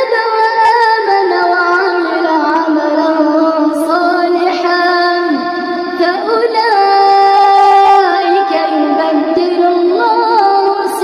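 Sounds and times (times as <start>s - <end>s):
woman chanting melodically: 0.0s - 11.0s.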